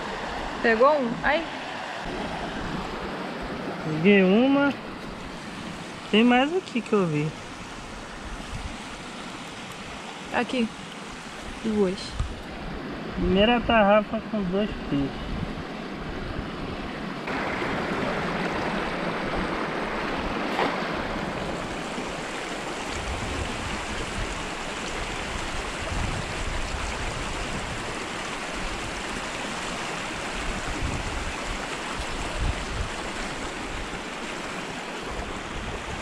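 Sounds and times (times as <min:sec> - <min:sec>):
river rushing over rocks: 0:16.8 - 0:36.0.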